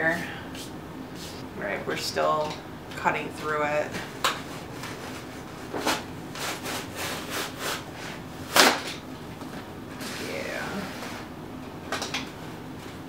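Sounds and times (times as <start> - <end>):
blade sawing styrofoam: 5.9 - 7.9.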